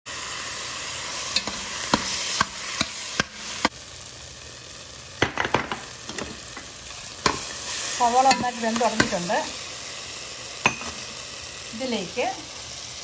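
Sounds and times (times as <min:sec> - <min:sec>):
vegetables sizzling in oil: 0:00.1 - 0:13.0
spoon clinking and scraping pot: 0:01.3 - 0:03.7, 0:06.1 - 0:09.2, 0:10.6 - 0:11.1.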